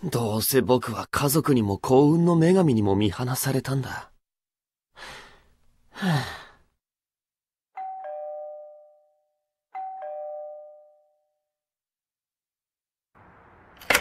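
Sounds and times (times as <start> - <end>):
breathy sigh: 5.0 - 6.7
two-tone doorbell chime: 7.8 - 11.5.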